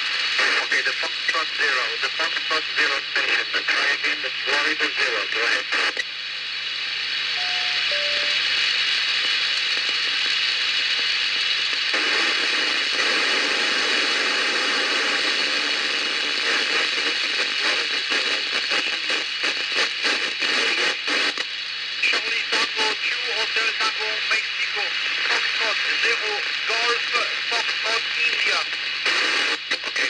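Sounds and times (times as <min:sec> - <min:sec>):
radio receiver hiss: 0:00.0 - 0:30.0
short beeps: 0:07.4 - 0:08.5.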